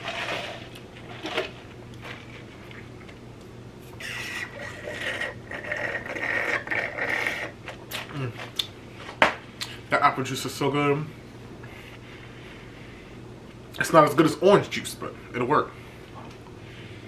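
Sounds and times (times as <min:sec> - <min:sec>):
slurping through a straw: 0:04.0 - 0:07.6.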